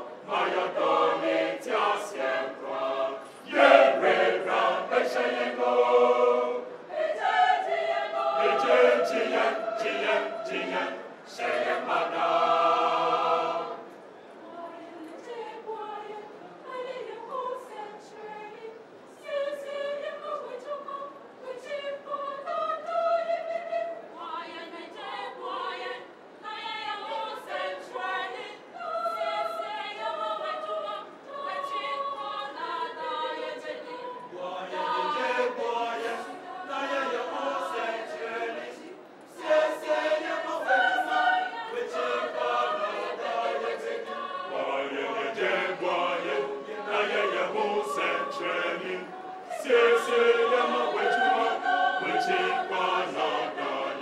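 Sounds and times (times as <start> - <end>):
mixed choir singing: 0.0 - 54.0.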